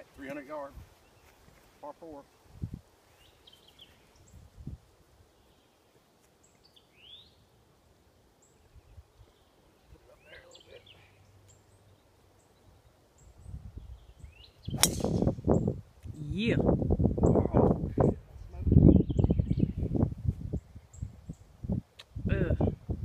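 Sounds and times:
faint bird chirps: 0:08.4 - 0:15.7
golf club striking ball: 0:14.8 - 0:15.5
golf club swing swish: 0:14.8 - 0:15.5.

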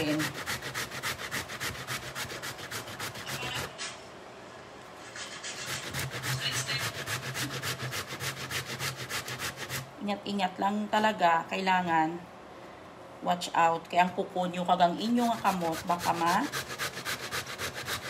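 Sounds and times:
root scraped on metal grater: 0:00.0 - 0:03.7, 0:05.5 - 0:09.9, 0:15.0 - 0:18.0.

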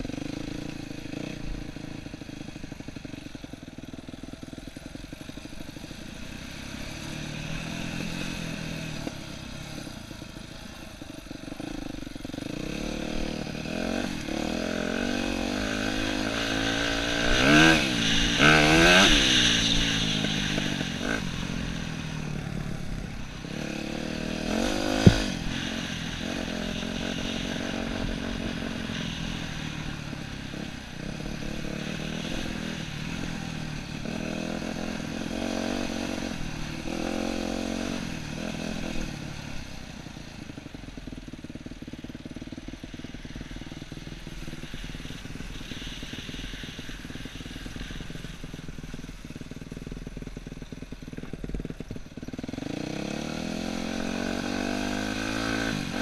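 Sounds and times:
dirt bike engine revving: 0:00.0 - 0:49.3, 0:50.6 - 0:56.0
sharp knock: 0:24.9 - 0:25.3.

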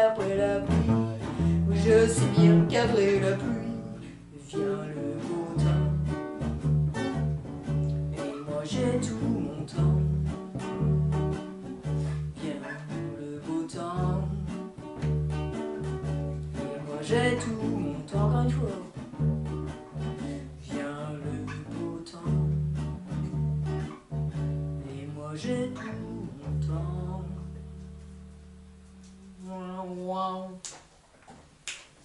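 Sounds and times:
person singing: 0:00.0 - 0:06.4, 0:08.0 - 0:10.4, 0:11.9 - 0:14.9, 0:16.6 - 0:19.0, 0:20.2 - 0:23.0, 0:24.8 - 0:27.8, 0:28.8 - 0:30.8
acoustic guitars strumming: 0:00.0 - 0:30.3.

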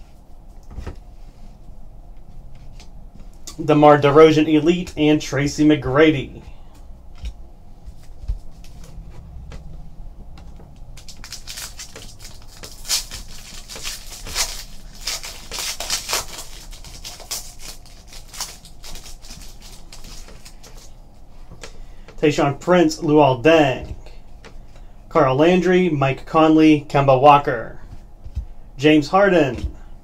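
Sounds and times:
card pack wrapper crinkling and tearing: 0:11.0 - 0:20.9.

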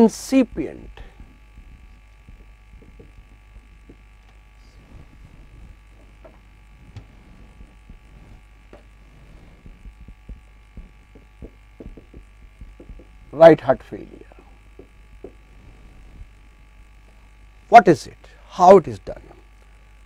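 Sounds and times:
steady electrical hum: 0:00.0 - 0:20.0
marker pen scratching on whiteboard: 0:00.8 - 0:16.4.

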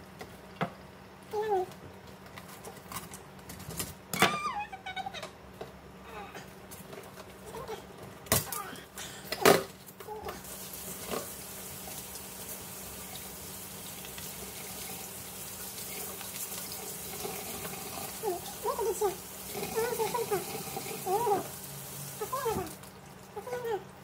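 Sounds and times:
tap water running into sink: 0:10.4 - 0:22.9.

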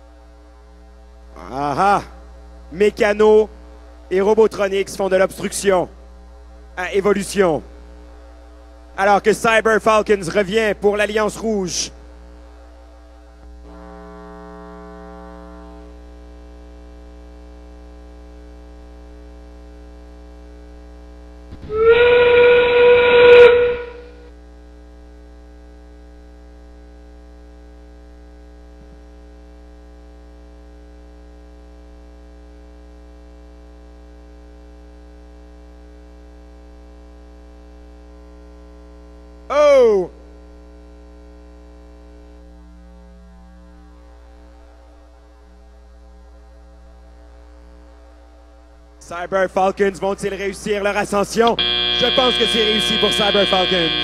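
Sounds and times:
electrical hum: 0:00.0 - 0:54.0
falling pitch tone: 0:21.6 - 0:24.3, 0:51.6 - 0:54.0
train whistle blast: 0:21.6 - 0:24.3, 0:51.6 - 0:54.0.

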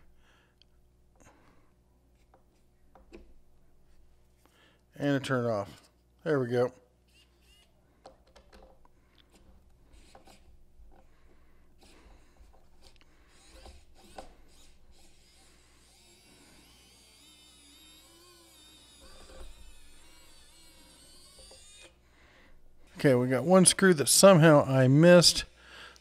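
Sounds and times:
faint wavering motor whine: 0:09.0 - 0:25.6.

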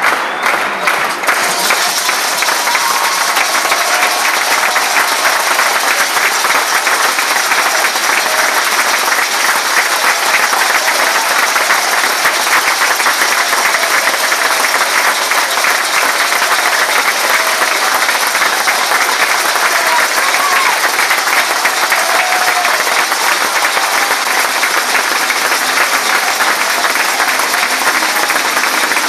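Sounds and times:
crowd applauding: 0:00.0 - 0:29.0.

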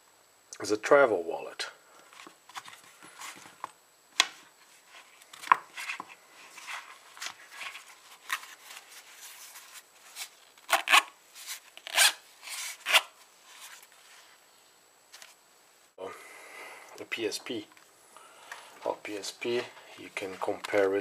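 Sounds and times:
wallet rustling and scraping: 0:04.6 - 0:14.4
zipper pulled closed: 0:10.7 - 0:11.1, 0:11.8 - 0:13.1.

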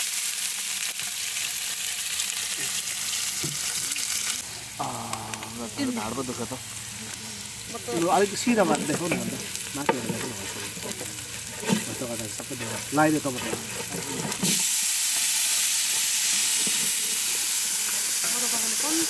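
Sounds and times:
loud sizzling hiss: 0:00.0 - 0:19.0
ladle scraping a pot: 0:08.6 - 0:14.8.

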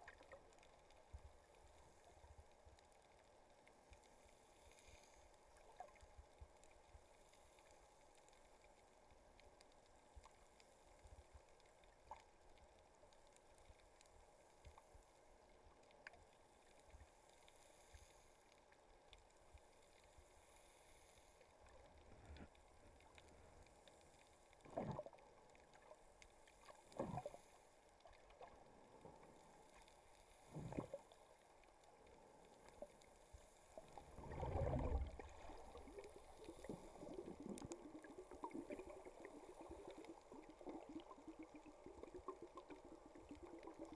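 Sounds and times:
faint underwater hiss: 0:00.0 - 0:43.9
whooshes of moving water: 0:34.0 - 0:37.7.

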